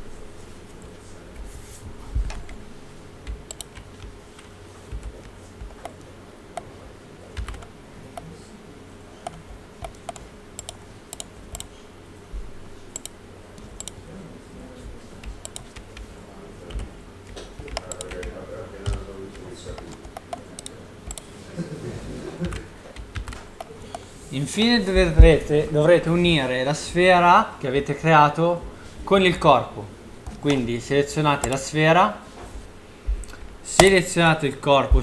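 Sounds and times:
faint steady hum: 0.0s - 35.0s
keyboard and mouse clicks: 3.2s - 6.7s, 7.4s - 8.3s, 9.2s - 11.7s, 12.9s - 14.0s, 15.2s - 16.1s, 16.7s - 21.3s, 22.4s - 24.0s, 31.4s - 31.6s.

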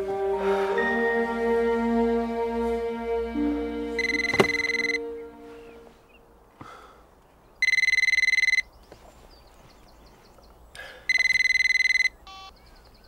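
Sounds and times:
telephone ringing: 4.0s - 5.0s, 7.6s - 8.7s, 11.1s - 12.5s.

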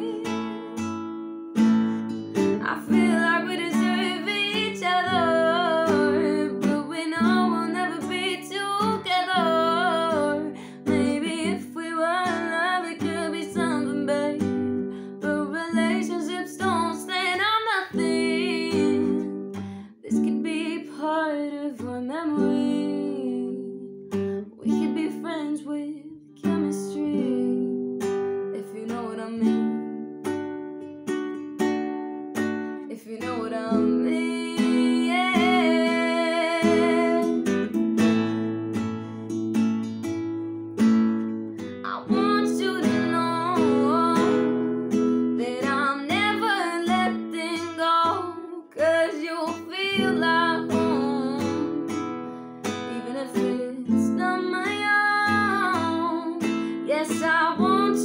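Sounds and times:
woman singing: 0.0s - 1.0s, 2.4s - 30.0s, 32.8s - 37.6s, 41.6s - 58.0s
acoustic guitar strumming: 0.0s - 15.1s, 29.6s - 58.0s.

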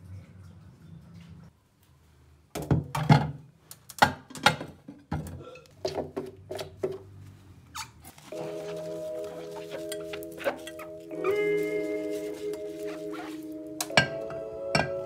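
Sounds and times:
glass dishes clinking: 13.9s - 15.0s.

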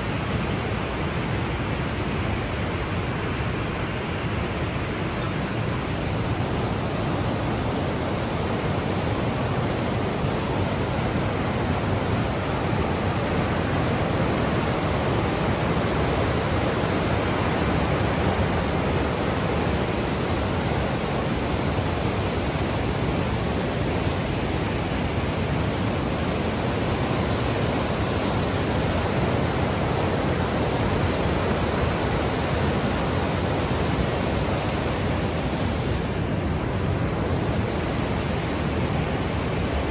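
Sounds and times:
rapids churning water: 0.0s - 39.9s.

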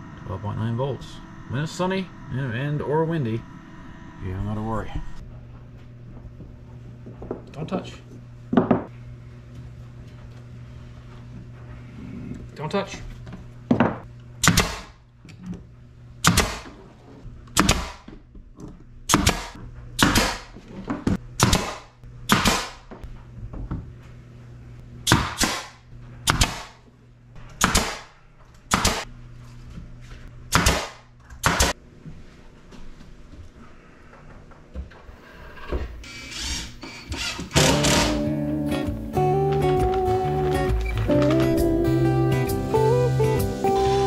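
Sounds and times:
nail gun firing into wood: 14.4s - 15.0s, 16.2s - 16.7s, 17.5s - 18.1s, 19.1s - 20.6s, 21.4s - 22.9s, 25.1s - 26.8s, 27.6s - 28.1s, 28.7s - 29.1s, 30.5s - 31.8s, 37.3s - 38.2s.

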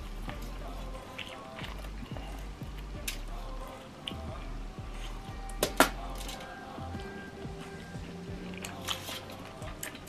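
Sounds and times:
background music: 0.0s - 10.0s
wet chewing and mouth smacks: 7.8s - 10.0s.

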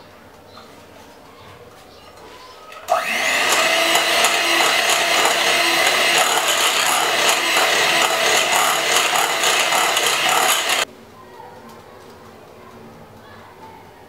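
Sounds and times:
electric hand mixer whisking: 2.8s - 10.9s.

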